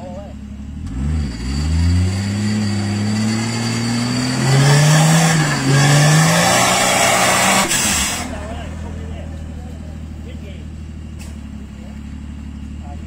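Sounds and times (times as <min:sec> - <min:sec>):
off-road engine revving: 0:00.0 - 0:13.0
loud rushing hiss: 0:06.4 - 0:08.4.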